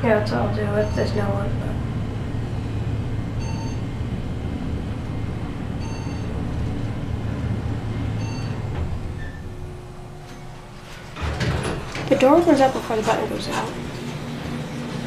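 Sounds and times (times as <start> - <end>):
elevator low hum: 0.0 - 15.0
short electronic beep: 3.4 - 3.8.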